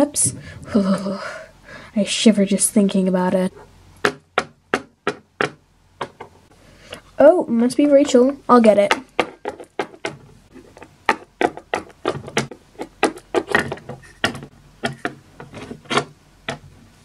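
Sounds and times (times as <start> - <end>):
plastic toy clicking and tapping: 8.8 - 16.6.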